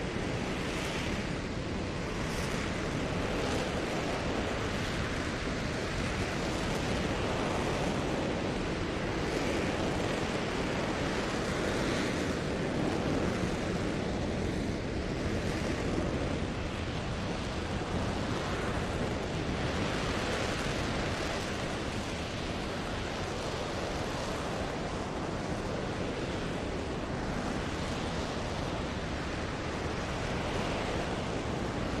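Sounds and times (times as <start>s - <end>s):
distant rocket engine rushing: 0.0s - 32.0s.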